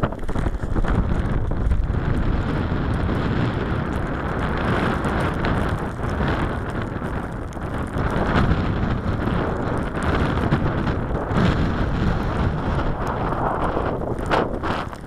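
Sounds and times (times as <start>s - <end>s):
wind on microphone: 0.0s - 15.0s.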